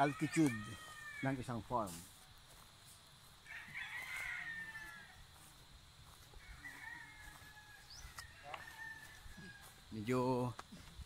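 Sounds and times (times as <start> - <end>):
rooster crowing: 0.0 - 1.5, 3.4 - 5.5, 6.1 - 9.9.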